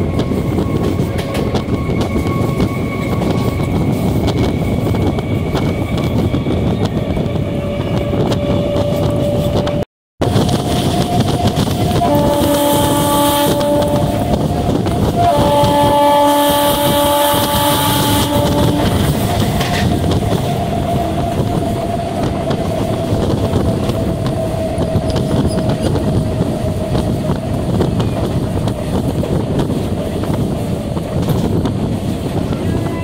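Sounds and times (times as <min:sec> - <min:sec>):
train rumbling on track: 0:00.0 - 0:33.0
train horn blast: 0:11.8 - 0:19.4.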